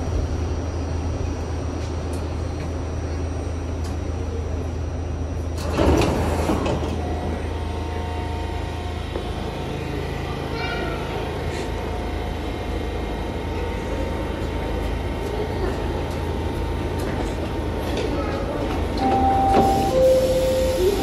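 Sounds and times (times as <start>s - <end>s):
subway car humming: 0.0s - 21.0s
train doors sliding open: 5.4s - 7.4s, 18.6s - 21.0s.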